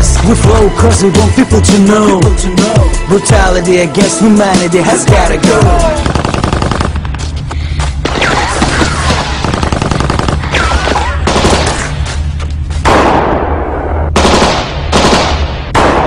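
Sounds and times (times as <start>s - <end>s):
machine-gun fire: 5.8s - 7.1s, 8.1s - 11.9s, 12.9s - 16.0s.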